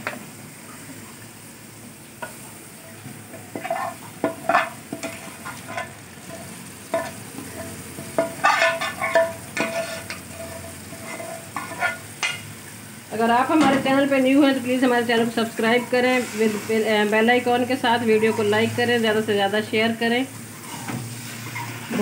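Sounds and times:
gravy sizzling: 0.0s - 22.0s
metal spoon scraping pans: 3.3s - 12.4s.

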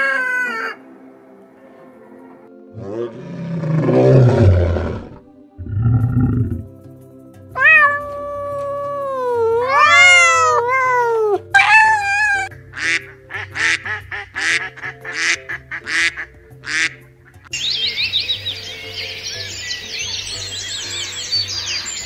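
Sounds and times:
background music: 0.0s - 22.0s
cat meowing: 7.6s - 12.5s
ducks quacking: 12.7s - 17.5s.

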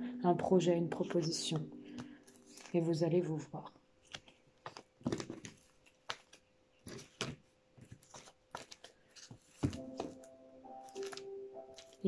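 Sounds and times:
cards shuffling: 1.5s - 2.9s, 4.0s - 12.0s.

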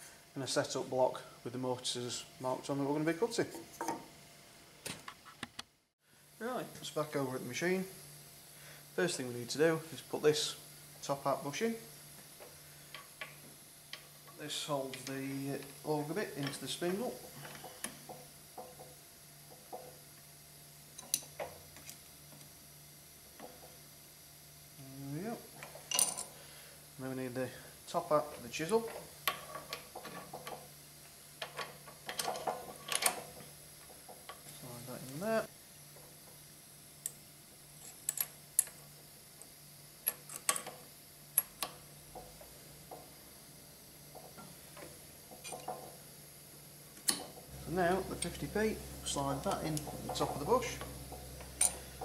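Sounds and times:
faint steady hum: 6.0s - 52.0s
low hum: 46.7s - 52.0s.

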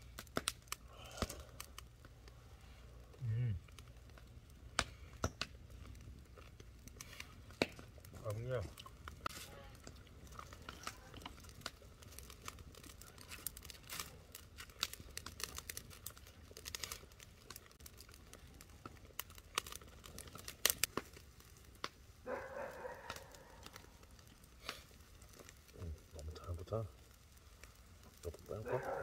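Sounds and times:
crackles and rustling: 0.0s - 29.0s.

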